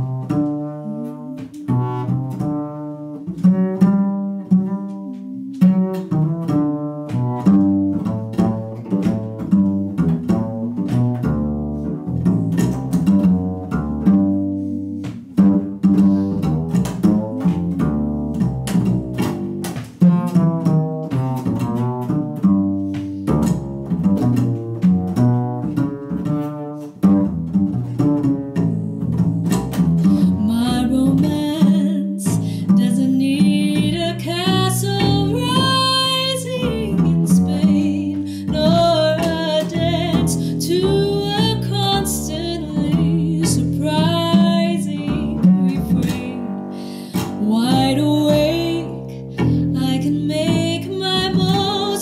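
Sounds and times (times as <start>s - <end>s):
double bass plucked: 0.0s - 52.0s
woman singing: 28.6s - 52.0s.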